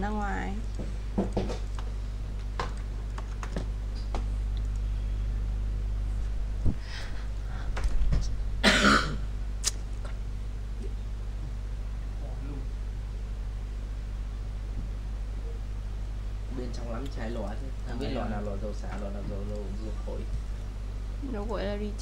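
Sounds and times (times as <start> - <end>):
steady low hum: 0.0 - 22.0
person coughing: 8.6 - 9.2.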